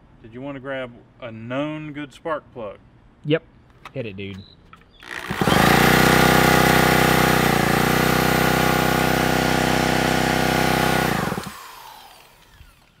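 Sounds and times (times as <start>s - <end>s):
cordless drill motor whine: 5.0s - 13.0s.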